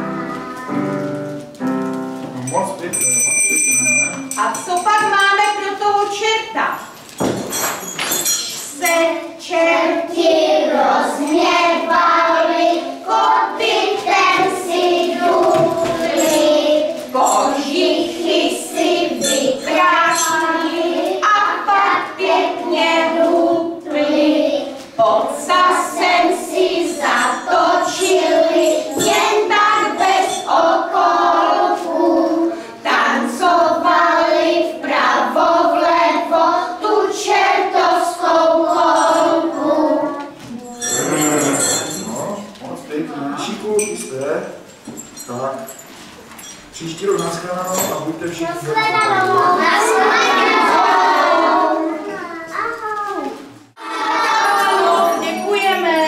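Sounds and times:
children singing: 0.0 - 1.1, 8.8 - 42.1, 48.2 - 52.4, 53.7 - 56.0.

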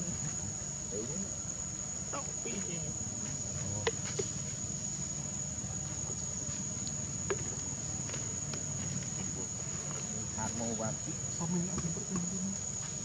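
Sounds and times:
insect drone: 0.0 - 13.0.

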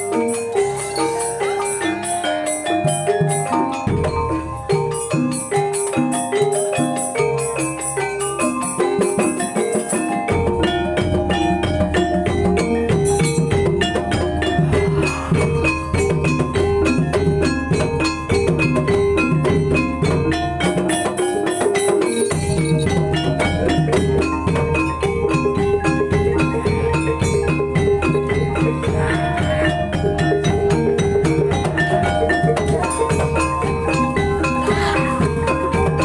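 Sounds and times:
gamelan tuned percussion: 0.0 - 36.0
low drum: 10.2 - 36.0.

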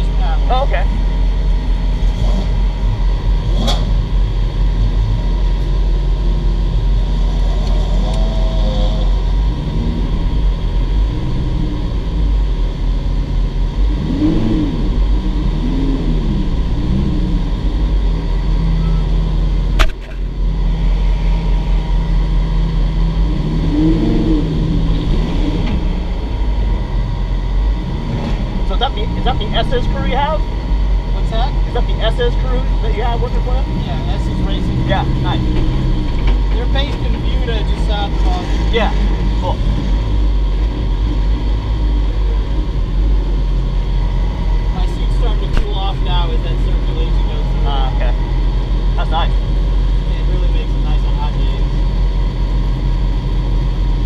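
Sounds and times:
car engine idling: 0.0 - 54.0
sharp click: 19.8 - 20.2.

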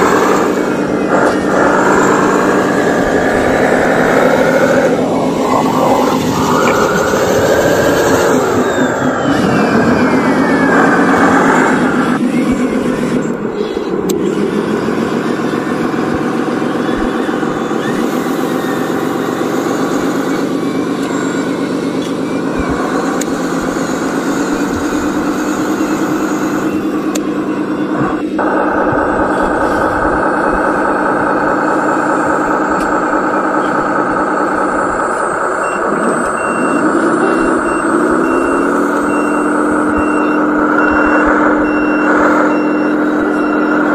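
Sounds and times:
high whine gliding down: 0.0 - 43.9
toy truck motor running: 0.0 - 43.9.

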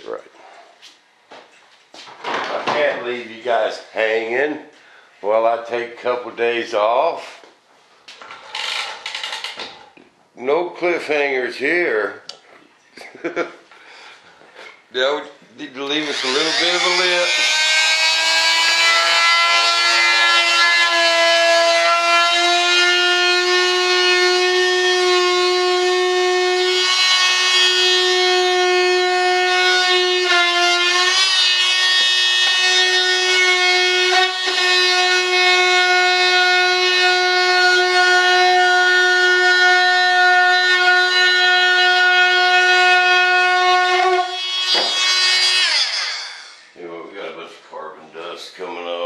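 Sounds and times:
rotary tool whining: 8.3 - 9.8, 15.8 - 46.7.

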